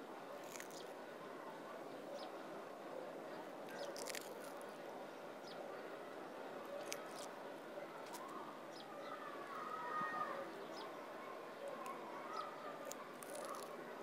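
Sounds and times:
tortoise crunching vegetable: 0:00.3 - 0:01.0, 0:03.6 - 0:04.8, 0:06.7 - 0:07.4, 0:12.7 - 0:13.9.

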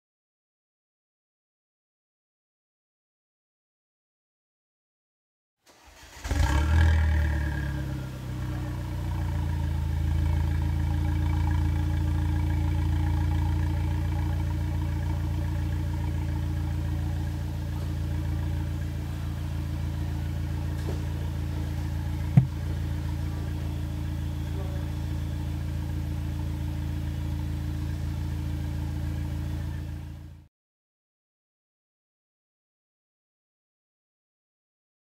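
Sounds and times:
car engine exhaust idling: 0:06.3 - 0:30.4.

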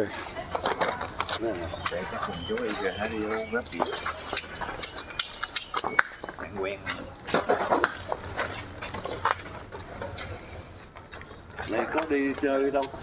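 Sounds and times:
people talking: 0:00.0 - 0:04.8, 0:11.6 - 0:13.0.

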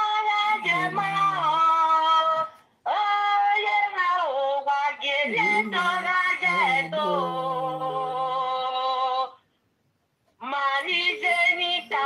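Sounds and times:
woman singing long notes: 0:00.4 - 0:01.9, 0:05.0 - 0:08.5.

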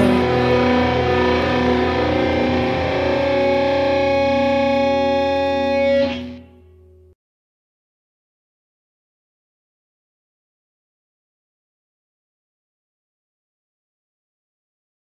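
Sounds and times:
rock music: 0:00.0 - 0:06.9
distorted electric guitar chord ringing: 0:00.0 - 0:07.1.

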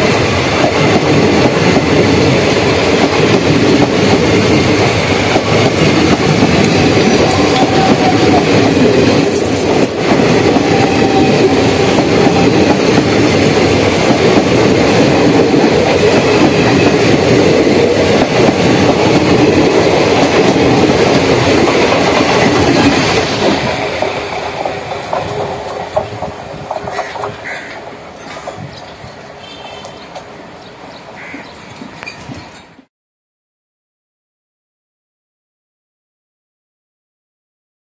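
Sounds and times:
train wheels rumbling on track: 0:00.0 - 0:32.9.

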